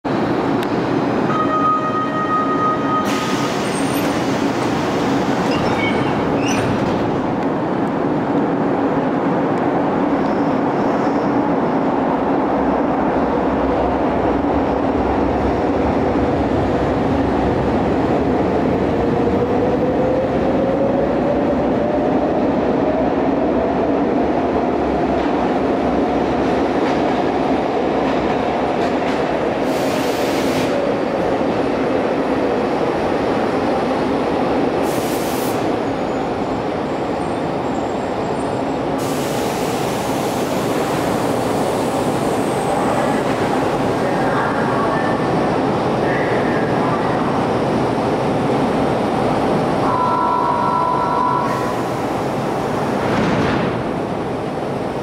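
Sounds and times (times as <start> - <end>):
train wheels and motors rumbling: 2.7 - 55.0
held tone: 49.8 - 51.7.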